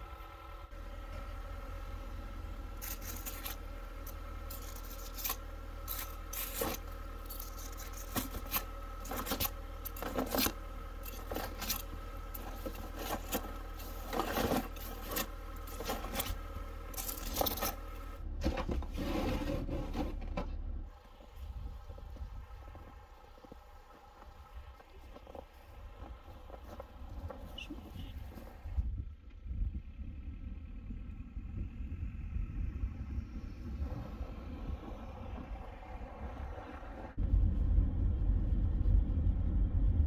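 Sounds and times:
car engine idling: 0.0s - 40.0s
scraping snow and ice off car: 2.7s - 28.8s
wipers dragging over iced windshield: 2.8s - 17.8s.

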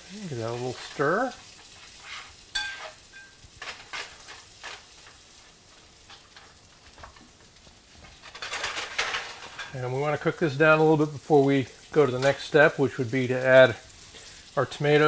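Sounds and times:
food sizzling in a frying pan: 0.0s - 15.0s
spatula scraping a pan: 0.4s - 6.7s.

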